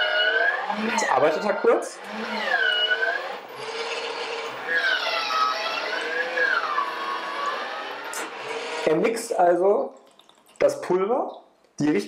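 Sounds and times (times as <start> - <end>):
formula machine motor whining: 0.0 - 9.4.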